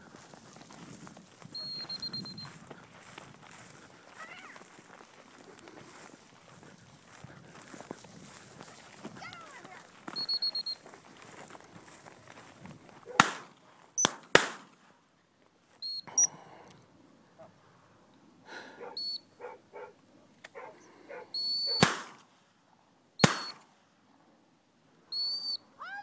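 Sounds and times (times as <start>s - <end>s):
loud sharp cracks: 13.2s - 14.8s, 21.8s - 22.3s, 23.2s - 23.6s
dog whistle blasts: 21.3s - 21.8s, 25.2s - 25.6s.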